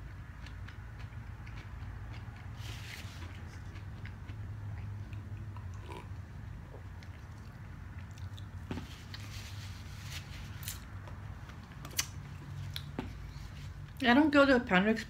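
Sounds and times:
quiet chewing: 0.0s - 11.2s, 11.8s - 14.0s
steady low hum: 0.0s - 15.0s
sipping and swallowing: 4.8s - 8.6s.

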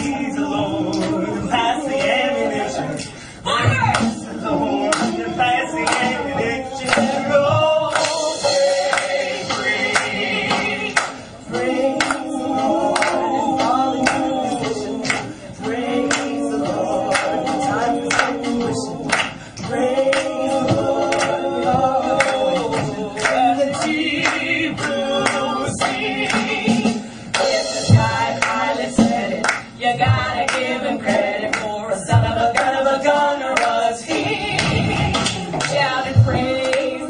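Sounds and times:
vocal trio singing a cappella: 0.0s - 37.0s
singers breathing: 3.0s - 3.5s, 15.2s - 15.6s, 19.3s - 19.6s, 27.0s - 27.4s
handclaps: 5.8s - 6.2s, 6.8s - 7.3s, 7.9s - 8.3s, 9.9s - 11.2s, 11.9s - 12.3s, 12.9s - 15.3s, 16.1s - 16.4s, 17.1s - 17.4s, 18.0s - 18.4s, 19.1s - 20.4s, 21.1s - 21.4s, 22.1s - 26.5s, 29.4s - 29.7s, 30.4s - 30.8s, 32.5s - 32.8s, 33.6s - 33.8s, 34.5s - 36.9s.

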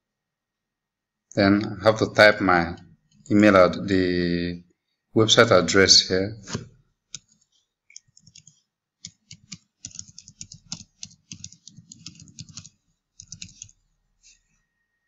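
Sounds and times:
computer keyboard typing: 7.1s - 13.8s.

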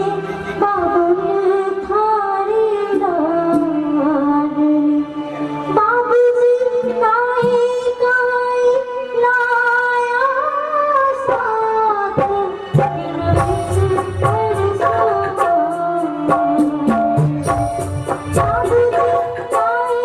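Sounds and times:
instrumental accompaniment: 0.0s - 20.0s
low drum beats: 12.2s - 15.6s.

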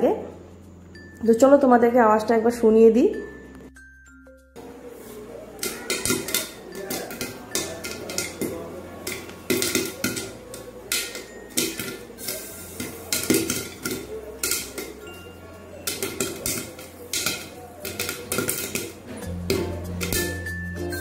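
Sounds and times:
popcorn popping in metal pot: 5.5s - 21.0s.

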